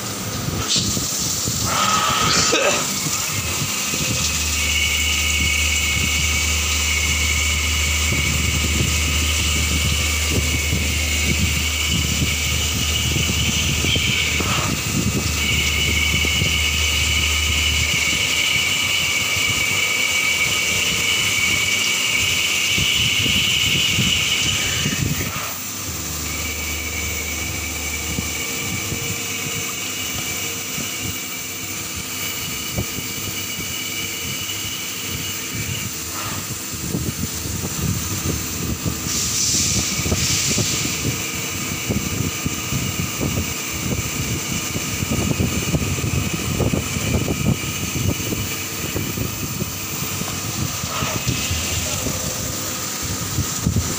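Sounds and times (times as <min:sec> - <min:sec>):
machine high whine: 0:00.0 - 0:53.9
low hum: 0:03.0 - 0:22.4, 0:23.3 - 0:31.2.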